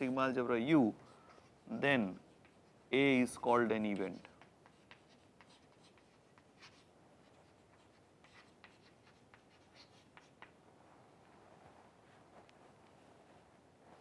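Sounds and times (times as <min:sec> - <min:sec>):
chalk tapping and scratching on board: 0:02.3 - 0:03.2, 0:04.0 - 0:10.6.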